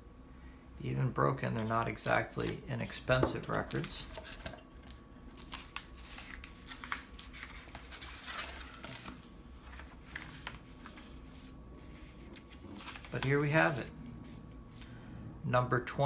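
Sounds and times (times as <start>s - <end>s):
cardboard and paper rustling: 1.6s - 14.4s.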